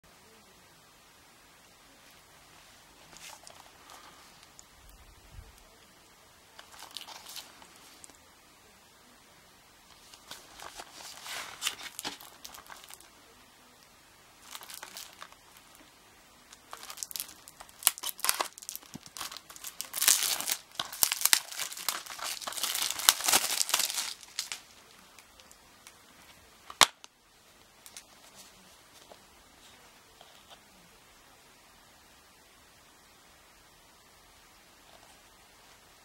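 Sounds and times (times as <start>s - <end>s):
plastic packaging crinkling and tearing: 3.1s - 4.7s, 6.6s - 8.2s, 9.9s - 13.1s, 14.4s - 15.8s, 16.5s - 26.0s, 26.7s - 27.1s.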